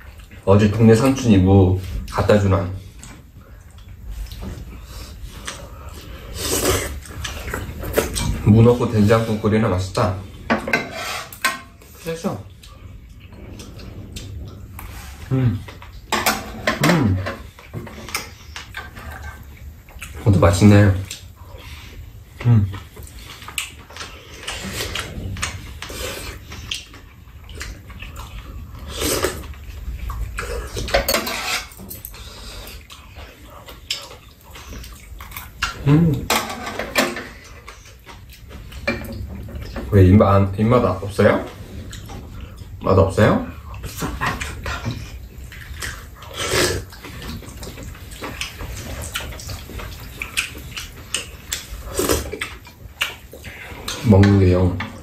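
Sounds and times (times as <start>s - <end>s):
chewing: 0.0s - 10.5s, 11.3s - 16.1s, 16.7s - 40.0s, 40.6s - 55.0s
eating sounds: 0.0s - 55.0s.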